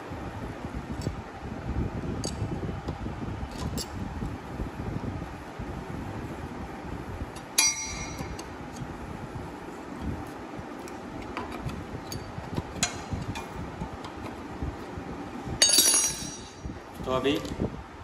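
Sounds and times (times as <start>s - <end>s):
workshop hum: 0.0s - 18.0s
socket wrench clinking on metal: 7.4s - 8.5s, 15.6s - 16.6s.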